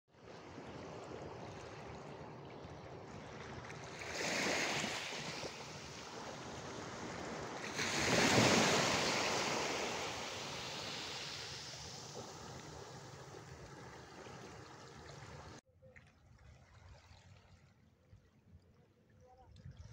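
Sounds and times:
sea waves washing on shore: 0:00.2 - 0:15.6.

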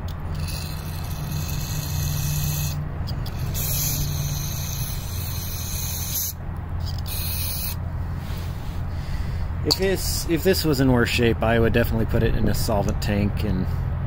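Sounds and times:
low hum: 0:00.0 - 0:10.9.

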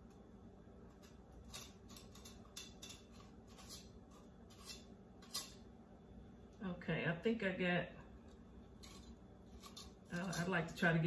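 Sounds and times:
knife scraping bell pepper: 0:00.9 - 0:05.6, 0:08.8 - 0:10.8.

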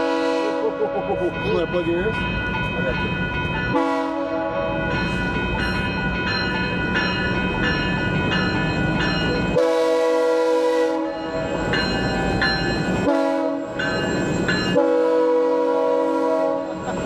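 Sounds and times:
train horn blasts: 0:00.0 - 0:00.8, 0:03.7 - 0:04.8, 0:09.5 - 0:11.5, 0:13.0 - 0:13.8, 0:14.7 - 0:16.8
crossing warning bell dinging: 0:00.0 - 0:17.0.

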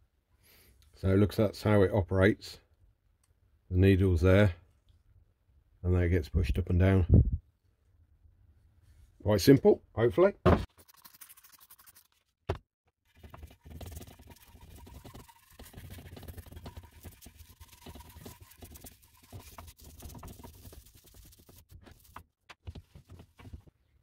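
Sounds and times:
stiff brush scrubbing: 0:10.7 - 0:12.2, 0:13.1 - 0:22.2.

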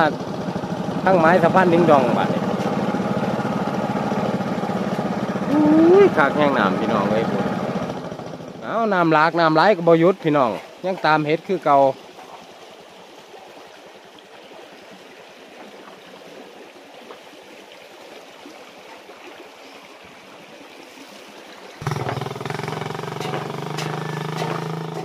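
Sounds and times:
motorcycle engine running: 0:00.0 - 0:08.8, 0:21.8 - 0:25.0
floodwater rushing in stream: 0:00.0 - 0:25.0.

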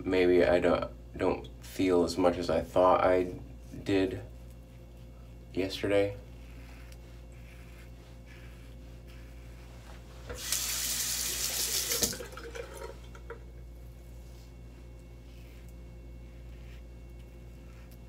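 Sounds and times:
tap running: 0:10.3 - 0:13.4.

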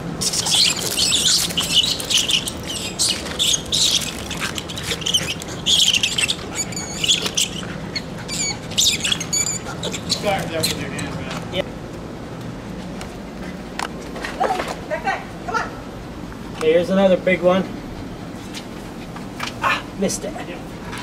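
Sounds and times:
rat squealing: 0:00.2 - 0:11.1.

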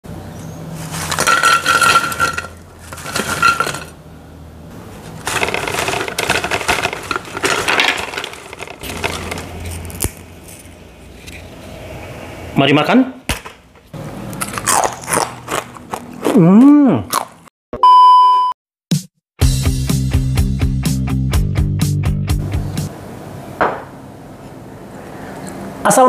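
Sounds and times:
crackers rattling in container: 0:00.8 - 0:04.0, 0:05.1 - 0:10.8.

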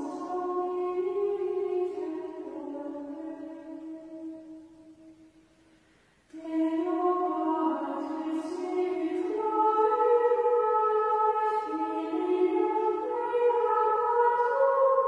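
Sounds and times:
women's choir chanting in unison: 0:06.4 - 0:15.0.

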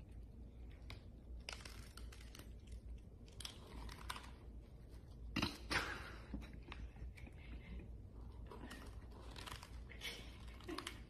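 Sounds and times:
cats crunching dry kibble: 0:00.5 - 0:05.1, 0:08.4 - 0:11.0.

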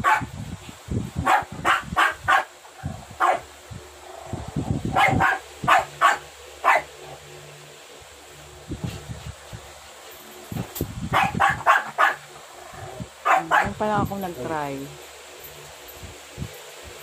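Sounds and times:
dog barking: 0:00.0 - 0:00.3, 0:01.2 - 0:02.5, 0:03.2 - 0:03.5, 0:04.9 - 0:06.9, 0:11.1 - 0:12.3, 0:13.2 - 0:13.8.

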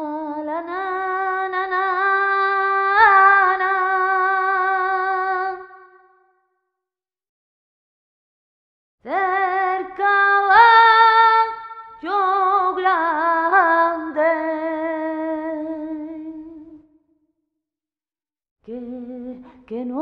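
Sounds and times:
woman singing unaccompanied: 0:00.0 - 0:06.1, 0:09.1 - 0:16.8, 0:18.7 - 0:20.0.

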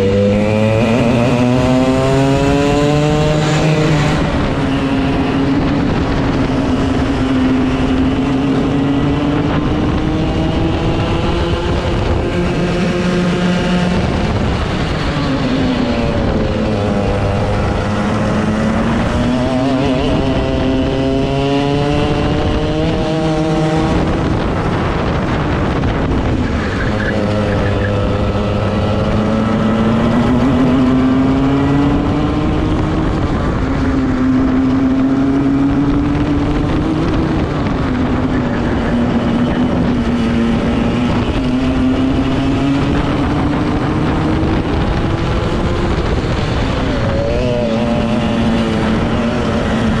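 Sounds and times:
racing kart engine revving: 0:00.0 - 0:50.0.

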